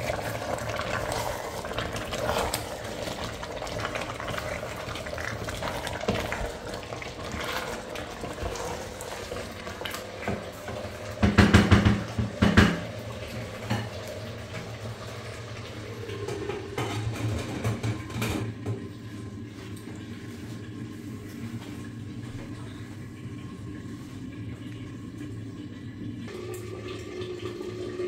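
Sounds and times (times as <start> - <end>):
food simmering: 0.0 - 28.0
wooden spoon scraping a pan: 0.9 - 9.5.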